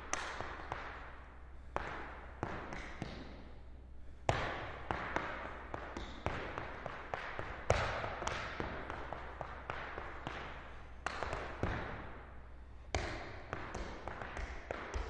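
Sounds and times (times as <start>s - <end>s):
hard shoes tapping on floor: 12.9s - 15.0s.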